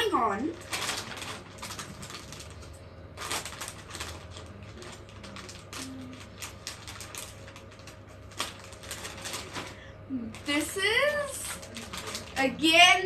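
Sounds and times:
plastic chip bag crinkling: 0:00.0 - 0:13.0.

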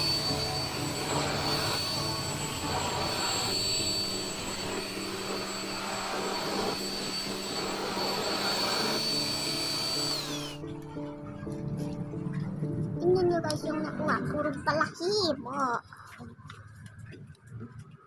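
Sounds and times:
stick vacuum whining: 0:00.0 - 0:11.7.

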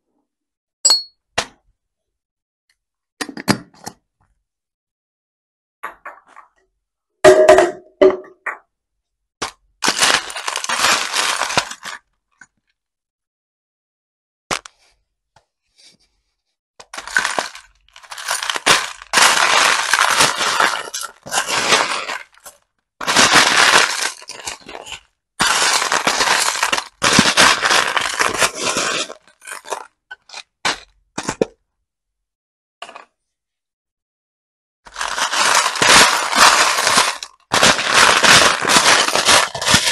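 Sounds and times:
plastic beads clattering: 0:09.8 - 0:12.0, 0:17.0 - 0:24.8, 0:25.4 - 0:29.8, 0:34.9 - 0:39.9.

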